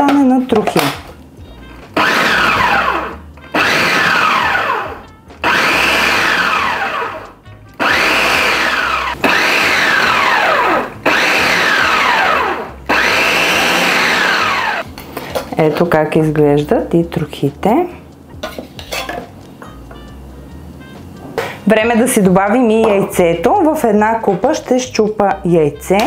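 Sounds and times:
food processor pulsing whine: 0:01.9 - 0:14.8.

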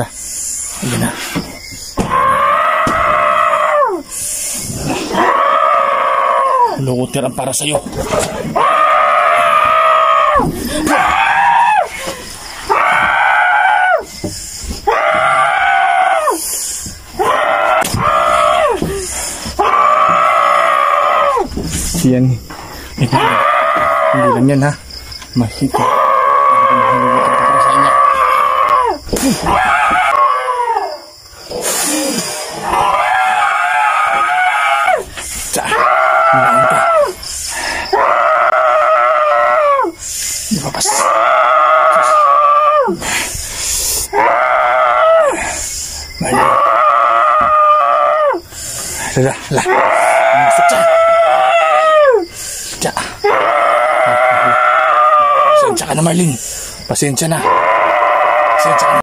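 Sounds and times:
sharp gasping breaths: 0:52.3 - 0:53.1, 0:56.4 - 0:56.9.

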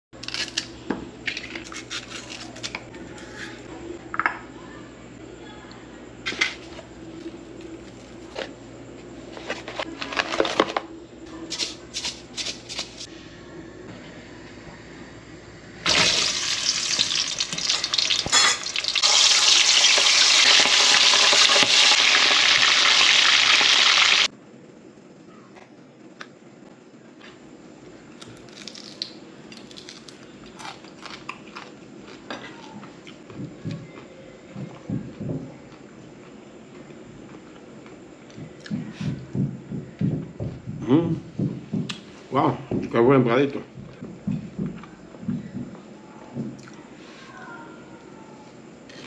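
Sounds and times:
fish sizzling in hot oil: 0:15.8 - 0:24.3.

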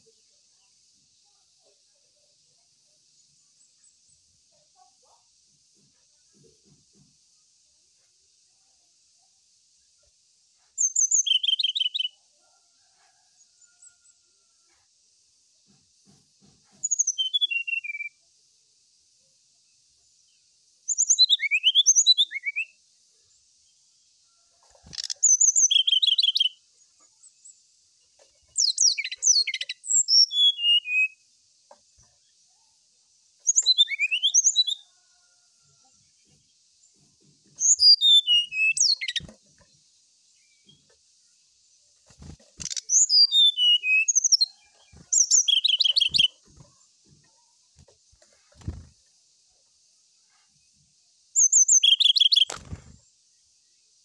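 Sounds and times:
bird singing whistled notes: 0:10.8 - 0:12.2, 0:16.8 - 0:18.2, 0:20.9 - 0:22.8, 0:24.9 - 0:26.6, 0:28.6 - 0:31.2, 0:33.4 - 0:34.8, 0:37.6 - 0:39.3, 0:42.6 - 0:46.4, 0:51.4 - 0:52.6.

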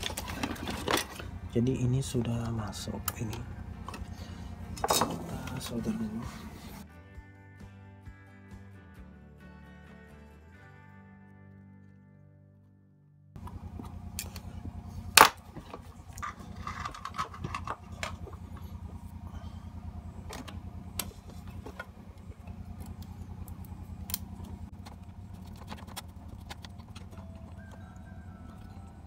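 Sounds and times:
low hum with fast flutter: 0:00.0 - 0:06.8, 0:13.4 - 0:29.0.

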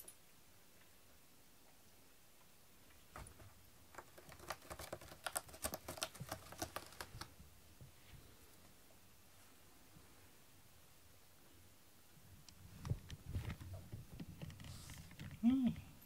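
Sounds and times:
cat scratching cardboard: 0:03.2 - 0:07.4.

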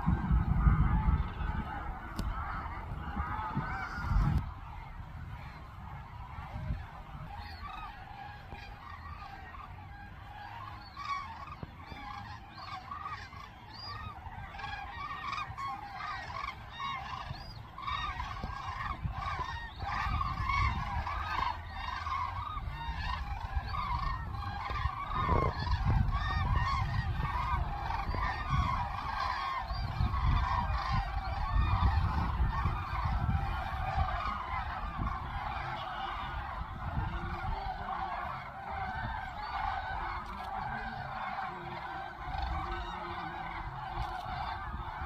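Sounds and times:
cranes trumpeting calls: 0:00.0 - 0:45.0.

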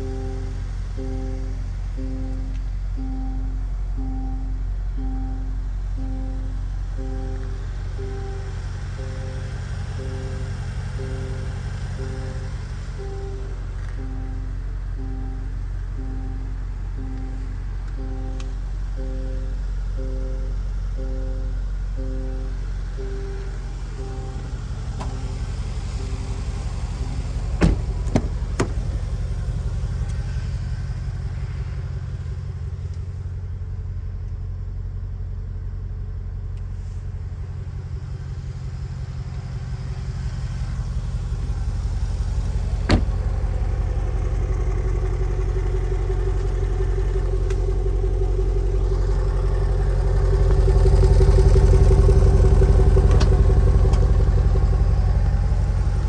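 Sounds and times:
car engine idling: 0:00.0 - 0:56.0.

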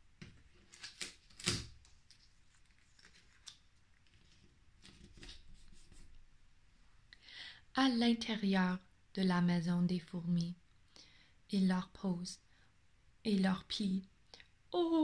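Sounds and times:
paper cutouts rustling: 0:00.1 - 0:06.2.

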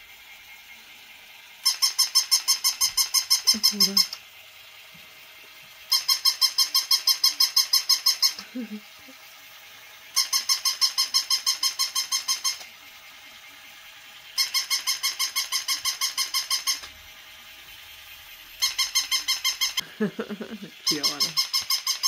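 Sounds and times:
toy dog electronic yaps: 0:01.6 - 0:04.6, 0:05.7 - 0:08.4, 0:10.0 - 0:17.3, 0:18.3 - 0:19.8, 0:20.8 - 0:22.0.

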